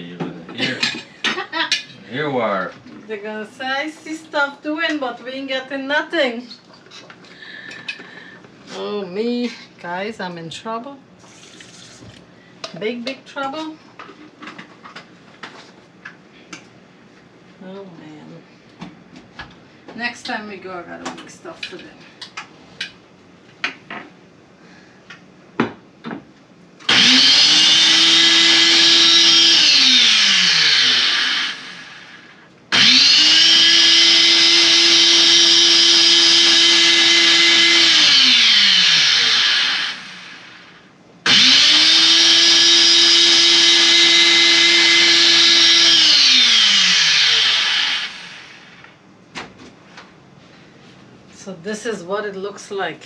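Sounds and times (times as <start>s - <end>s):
blender motor running: 26.8s - 49.0s.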